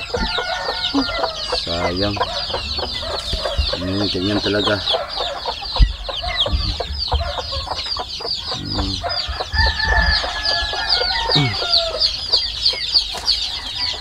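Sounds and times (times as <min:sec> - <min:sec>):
chickens clucking: 0:00.0 - 0:14.0
chicks peeping: 0:00.0 - 0:14.0
long drawn-out call: 0:10.2 - 0:12.2.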